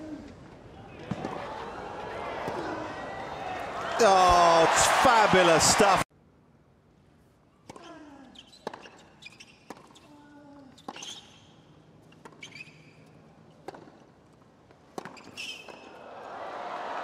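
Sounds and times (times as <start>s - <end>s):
crowd noise: 0.8s - 6.1s, 16.0s - 17.0s
sneaker squeaks: 7.7s - 13.9s, 15.0s - 16.0s.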